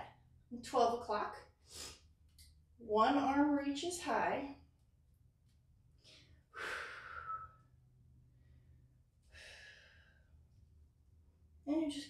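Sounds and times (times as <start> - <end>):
woman breathing out: 6.1 - 7.4.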